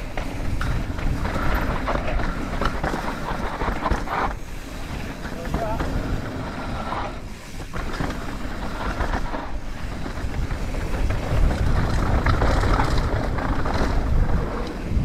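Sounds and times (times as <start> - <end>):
bike rattling: 0.0 - 15.0
tyres rolling over dirt: 0.0 - 15.0
wind buffeting microphone: 0.0 - 15.0.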